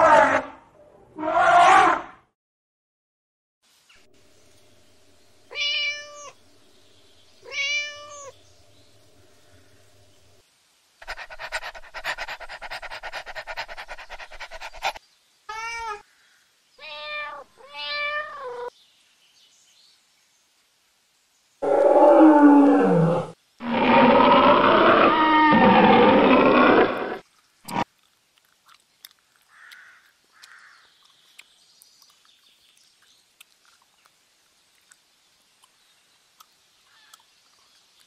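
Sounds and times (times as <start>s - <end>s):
cat meowing: 5.5s - 6.4s, 7.4s - 8.3s, 16.8s - 18.7s
dog panting: 11.0s - 15.0s
lion roaring: 21.6s - 27.8s.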